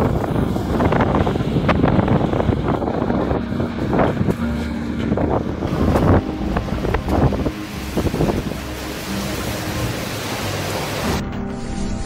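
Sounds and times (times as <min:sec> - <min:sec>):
storm wind buffeting microphone: 0:00.0 - 0:10.0.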